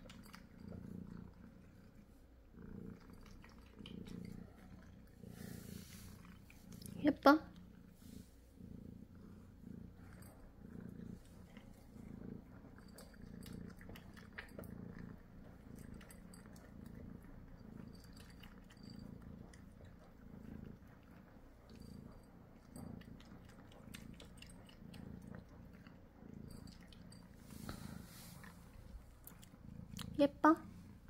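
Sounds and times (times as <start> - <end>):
cat purring: 0.0 - 31.0.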